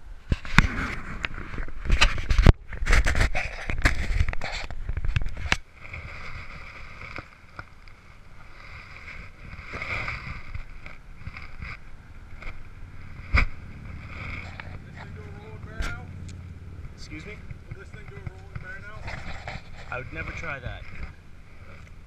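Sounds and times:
knocks and rubbing on camera housing: 1.6 - 5.6, 16.8 - 19.9, 20.8 - 21.2
muffled steady background: 9.2 - 22.0.

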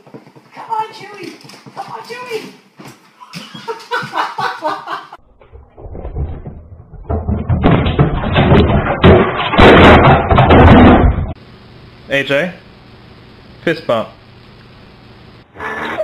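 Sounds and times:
tv crashing onto tiled floor: 6.1 - 11.4.

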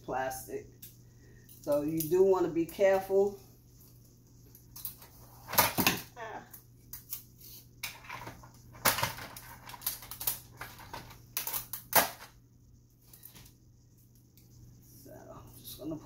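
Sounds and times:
rustling of tape strips: 3.7 - 12.4.

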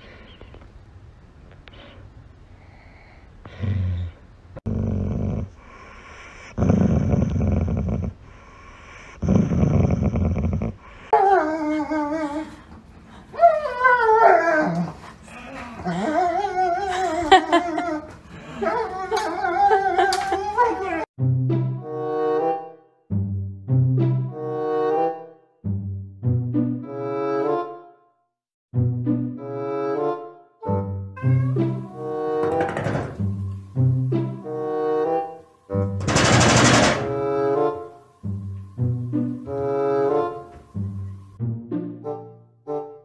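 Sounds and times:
dog growling low: 3.7 - 5.7, 6.4 - 8.2, 9.2 - 10.8
dog whining and howling: 11.1 - 12.6, 13.4 - 21.1.

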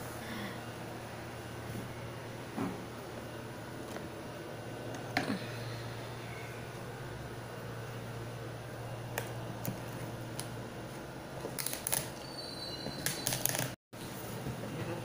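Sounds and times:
steady low hum: 0.0 - 12.0
packaging crinkling: 11.4 - 12.2.

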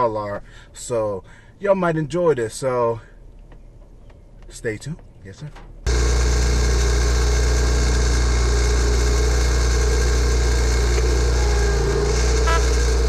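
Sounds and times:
mower engine running: 5.9 - 13.0.

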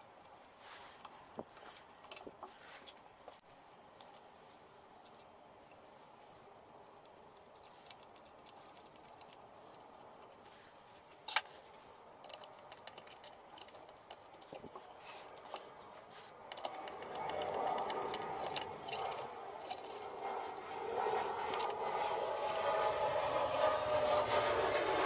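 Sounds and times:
screwdriving noises on wood: 12.2 - 20.6
screw grinding into wood: 16.2 - 20.6.

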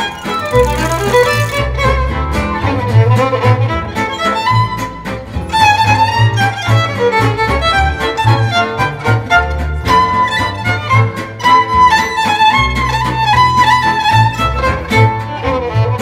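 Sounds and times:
pulsing bass line: 0.0 - 9.9
violin melody: 0.0 - 16.0.

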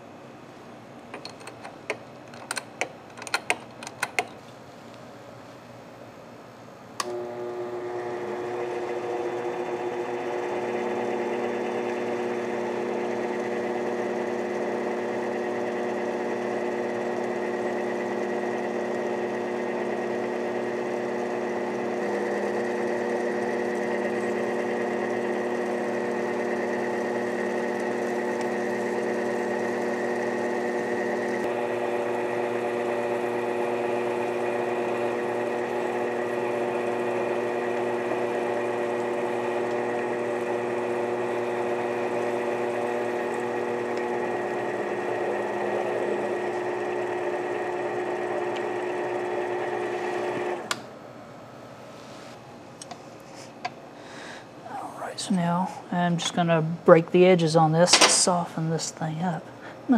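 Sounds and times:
lathe motor whine: 7.0 - 50.8.

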